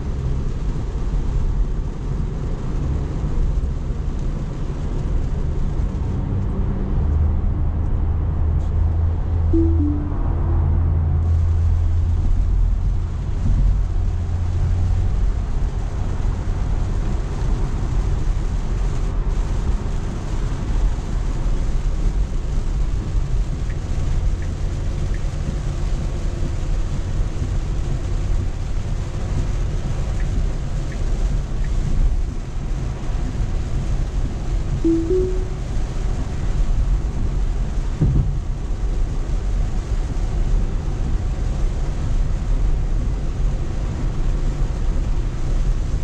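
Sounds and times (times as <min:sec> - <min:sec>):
heavy rain: 0:00.0 - 0:07.5, 0:09.2 - 0:46.0
road and tyre noise in car cabin: 0:00.0 - 0:46.0
deep rumble: 0:07.7 - 0:16.5.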